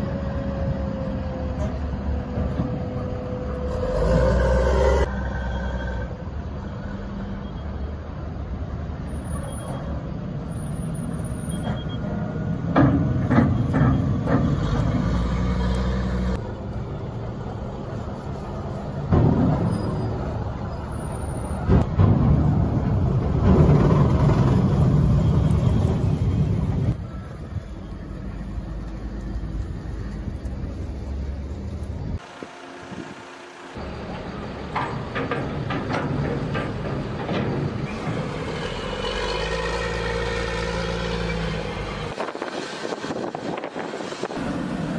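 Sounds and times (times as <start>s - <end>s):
diesel engine running: 11.0s - 44.9s.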